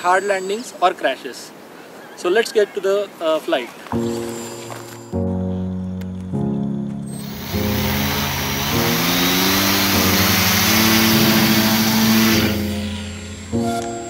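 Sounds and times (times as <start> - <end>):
background music with chords: 4.0 - 14.0
electric motor and propeller spinning: 7.1 - 14.0.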